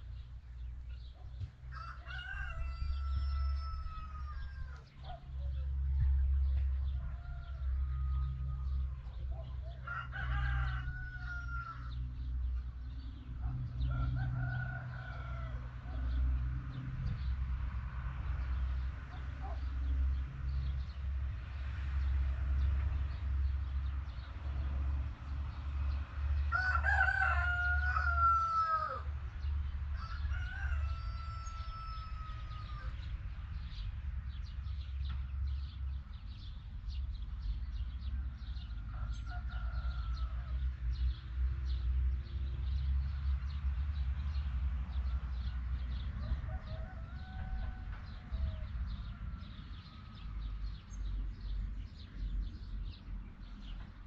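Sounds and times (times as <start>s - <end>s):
rooster crowing: 1.7s - 5.0s, 6.9s - 9.1s, 9.7s - 12.0s, 13.8s - 16.2s, 26.5s - 29.1s, 30.0s - 33.0s, 38.6s - 40.6s, 46.2s - 50.3s
steady low rumble: 3.8s - 9.8s.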